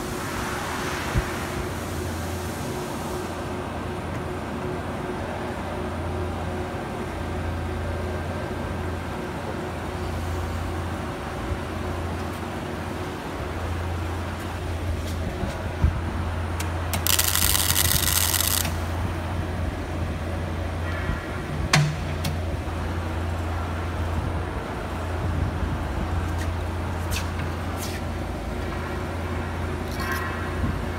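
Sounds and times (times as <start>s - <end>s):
welding machine low hum: 10.2s - 20.6s.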